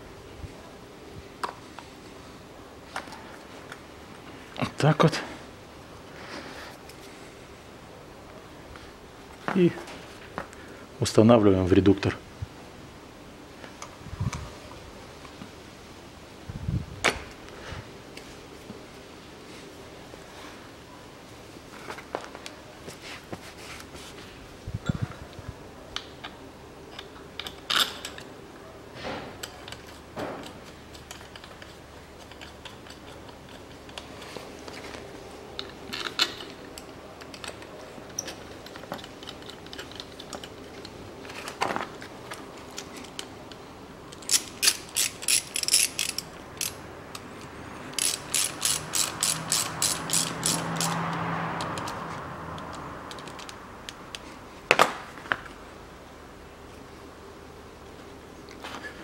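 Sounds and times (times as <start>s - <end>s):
ratchet wrench clicking: 44.1s - 47.2s, 47.9s - 54.2s.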